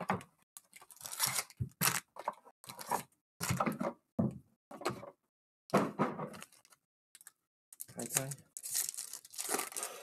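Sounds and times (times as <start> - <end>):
foil packs tearing and crinkling: 7.9 - 10.0.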